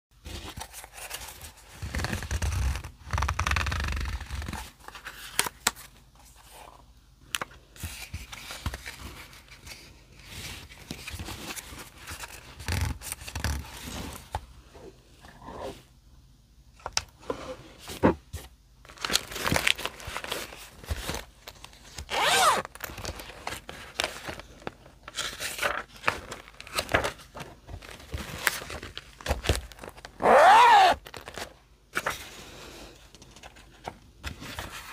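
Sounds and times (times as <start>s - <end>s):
paper rustling and tearing: 18.9s - 32.2s.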